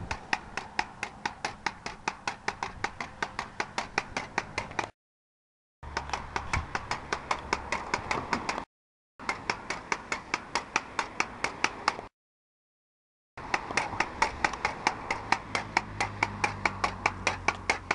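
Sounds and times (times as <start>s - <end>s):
pogo stick clacking on pavement: 0.0s - 4.9s, 5.8s - 12.1s, 13.4s - 17.9s.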